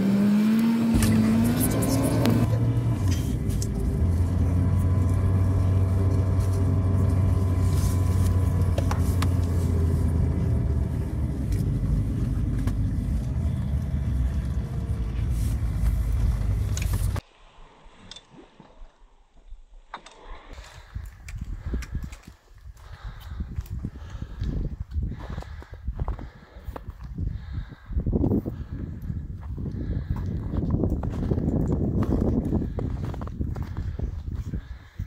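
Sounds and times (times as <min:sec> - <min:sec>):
car engine and tyre drone: 0:00.0 - 0:17.2.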